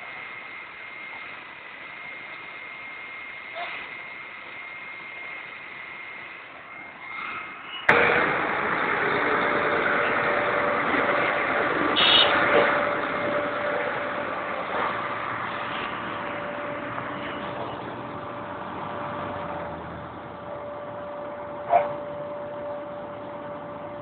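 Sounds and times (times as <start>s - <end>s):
faint steady whine: 0.0s - 24.0s
hoses spraying water: 7.9s - 18.1s.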